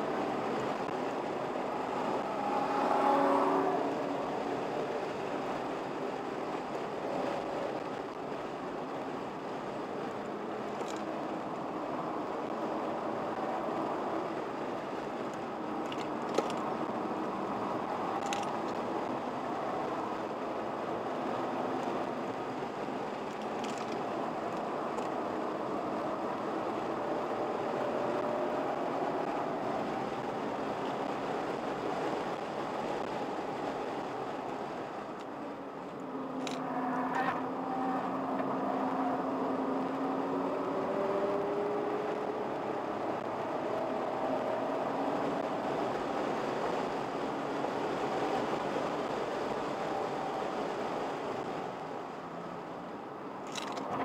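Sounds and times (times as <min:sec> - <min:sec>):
car engine at speed: 0:00.0 - 0:54.0
faint clicks and rattles: 0:23.2 - 0:25.2.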